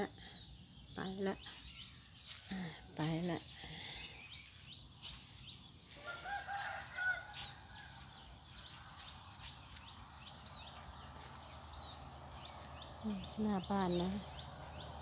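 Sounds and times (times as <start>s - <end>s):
small birds chirping: 0.0s - 15.0s
rooster crowing: 5.9s - 8.1s.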